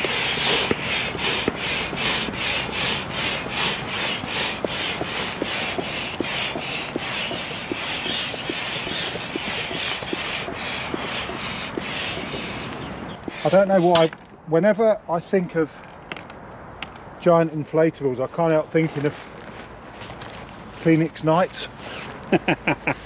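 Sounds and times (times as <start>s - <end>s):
hand air pump strokes: 0.0s - 14.2s, 18.9s - 23.0s.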